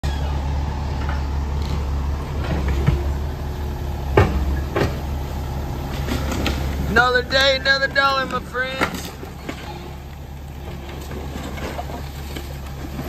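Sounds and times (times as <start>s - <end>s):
diesel machinery engine hum: 0.0s - 13.0s
knocks and clunks: 0.9s - 13.0s.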